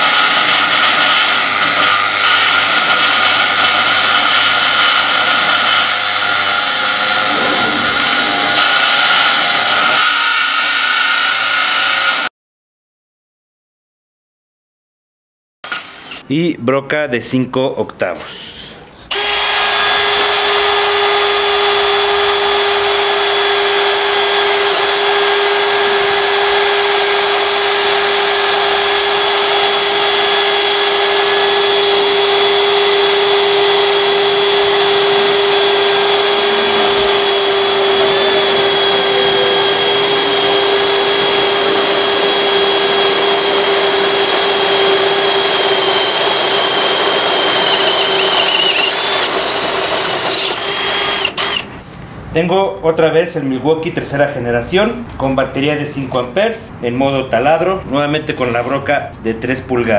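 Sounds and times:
drill bits boring through steel: 0.0 - 12.3, 19.1 - 51.8
drill motor whining: 0.0 - 12.3, 15.7 - 16.2, 19.1 - 51.8.

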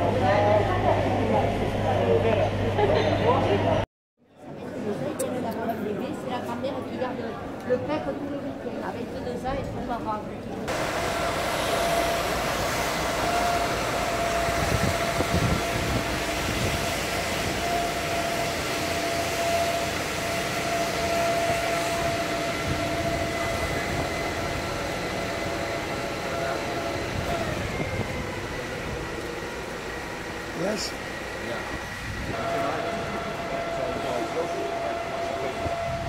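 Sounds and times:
low engine rumble: 10.6 - 36.0
high machine whine: 10.7 - 36.0.

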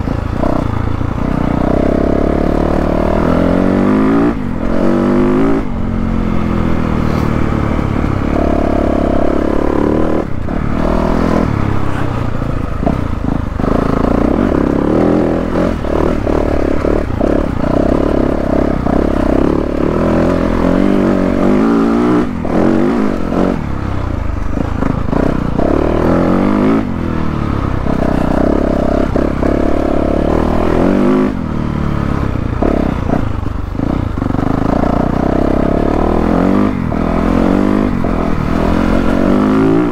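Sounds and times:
knocks and clatter over bumps: 0.0 - 31.5
dirt bike engine revving: 0.0 - 39.9.

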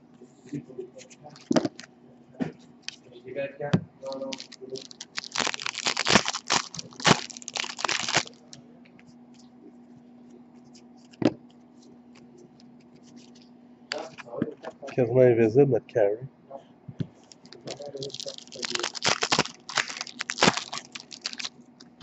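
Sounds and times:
foil wrapper crinkling: 4.0 - 8.6, 17.2 - 22.0.

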